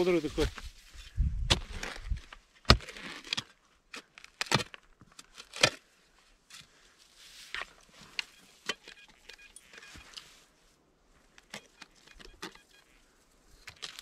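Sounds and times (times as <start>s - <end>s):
metal detector beeps: 7.9s - 10.4s, 11.4s - 13.1s.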